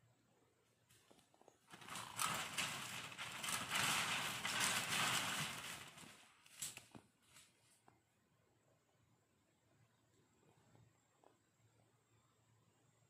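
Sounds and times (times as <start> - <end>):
leaves rustling: 1.7 - 7.7.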